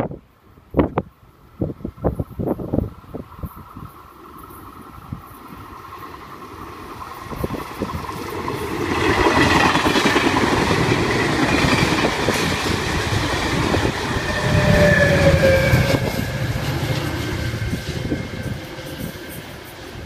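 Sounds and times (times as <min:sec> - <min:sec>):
deep locomotive engine rumble: 0:04.6 - 0:20.0.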